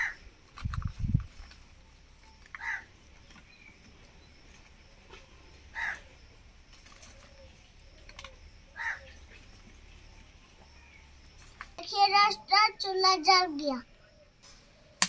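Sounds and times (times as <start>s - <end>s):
crow cawing: 2.6s - 2.9s, 5.7s - 6.1s, 8.8s - 9.2s.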